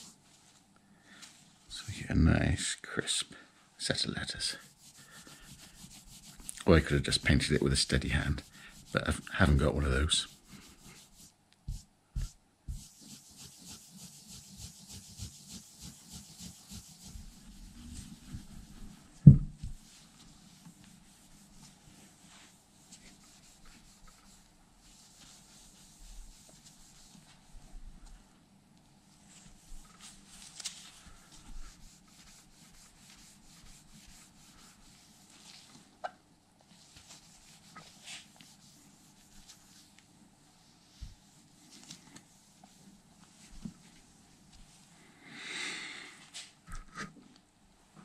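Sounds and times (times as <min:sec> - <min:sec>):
cloth rubbing on metal: 0:04.2 - 0:27.8, 0:29.2 - 0:35.9, 0:36.8 - 0:44.8.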